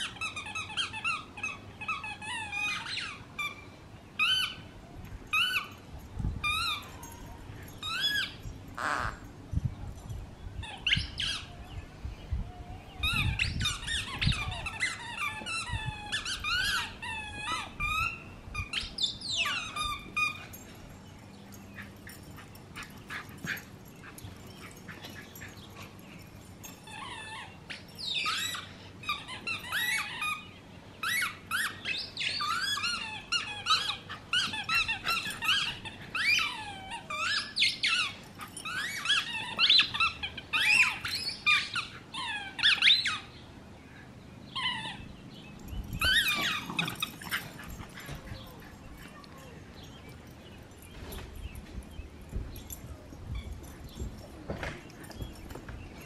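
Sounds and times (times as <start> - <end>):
dog squeaky toys squeaking: 0.0 - 4.6, 5.3 - 5.8, 6.4 - 9.3, 10.6 - 11.5, 13.0 - 20.6, 26.5 - 43.4, 44.5 - 45.1, 45.7 - 50.0.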